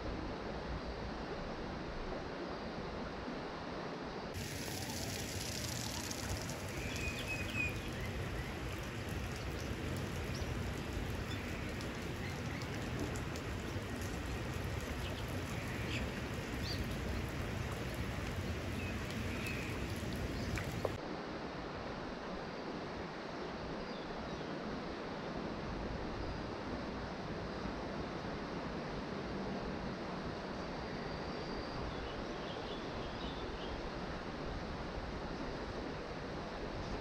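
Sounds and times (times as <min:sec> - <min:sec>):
creek water rushing: 0:04.4 - 0:21.4.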